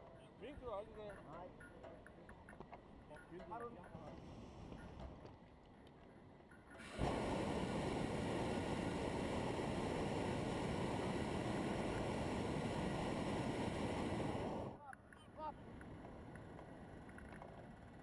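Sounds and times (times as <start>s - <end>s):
propane burner roaring: 6.8s - 14.8s.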